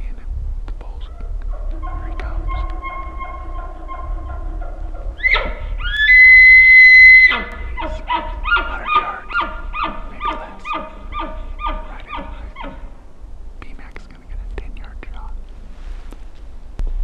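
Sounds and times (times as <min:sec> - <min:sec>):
elk bugling whistle: 0:01.5 - 0:13.0.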